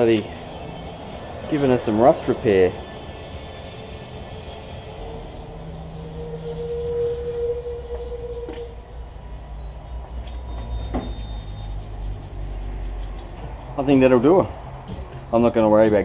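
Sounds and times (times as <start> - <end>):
sandpaper rasping on steel: 0.0 - 9.6, 11.0 - 13.4
steady hum: 0.0 - 9.8.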